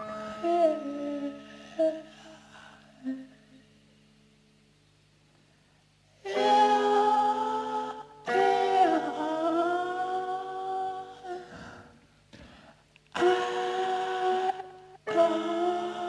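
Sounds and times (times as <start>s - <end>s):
voices humming long notes: 0.0s - 3.7s, 6.3s - 11.8s, 13.2s - 16.0s.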